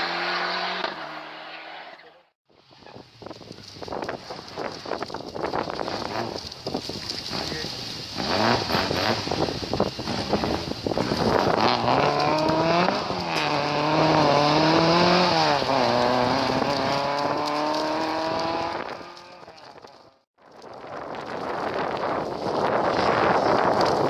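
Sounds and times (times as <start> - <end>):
rally car engine accelerating: 7.2 - 20.0.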